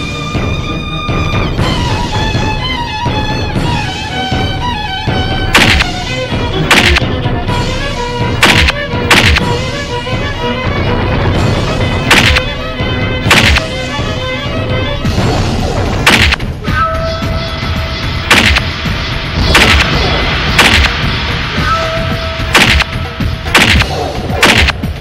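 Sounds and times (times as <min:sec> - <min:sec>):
background music: 0:00.0 - 0:25.0
heavy punch and kick hits: 0:05.5 - 0:06.0, 0:08.4 - 0:09.5, 0:12.1 - 0:12.4, 0:13.3 - 0:13.7, 0:16.0 - 0:16.5, 0:18.3 - 0:18.7, 0:19.4 - 0:21.0, 0:22.5 - 0:24.9.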